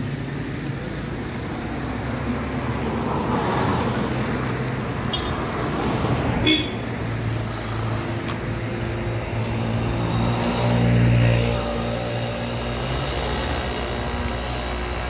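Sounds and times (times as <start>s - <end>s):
low hum of traffic: 0.0s - 15.0s
vehicle engine passing by: 7.2s - 15.0s.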